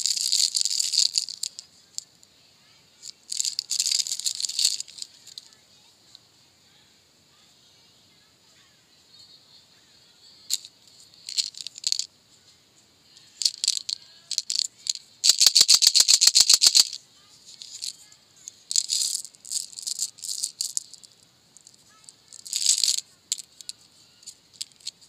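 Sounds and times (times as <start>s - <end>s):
candies rattling in plastic tube: 0.0s - 1.7s, 3.0s - 5.5s, 10.5s - 12.1s, 13.4s - 25.0s.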